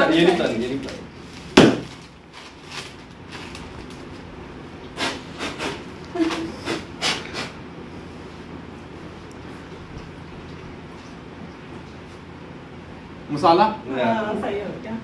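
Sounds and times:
steady low hum: 0.0 - 15.0
foil chip packet crinkling: 0.5 - 4.3.

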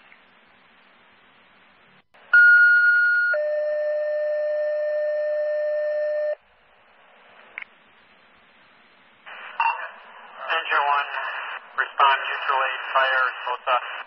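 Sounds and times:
two-tone radio page: 7.4 - 14.0
radio hiss: 8.2 - 14.0.

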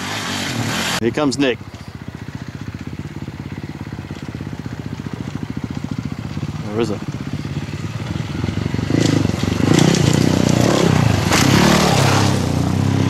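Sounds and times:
dirt bike engine running: 0.0 - 13.0
sharp clatters: 3.9 - 12.6.

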